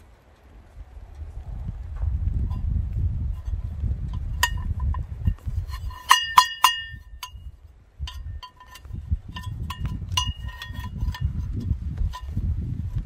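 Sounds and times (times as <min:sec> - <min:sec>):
metal cup clinking: 0:04.4 - 0:07.4, 0:08.1 - 0:11.4.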